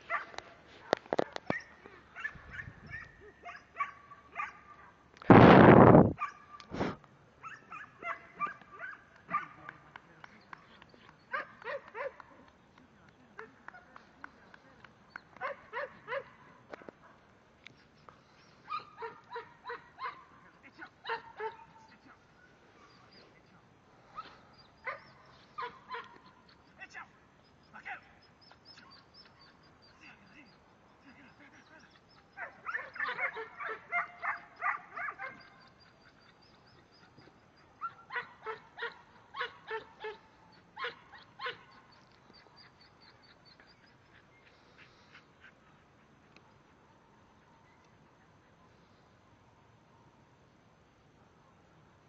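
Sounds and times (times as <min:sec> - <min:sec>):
dog barking: 0:00.1 - 0:04.9, 0:06.2 - 0:06.6, 0:07.4 - 0:09.8, 0:11.3 - 0:12.4, 0:15.4 - 0:17.2, 0:18.7 - 0:20.3, 0:21.0 - 0:21.8, 0:32.3 - 0:35.6, 0:37.8 - 0:40.2, 0:40.8 - 0:41.8.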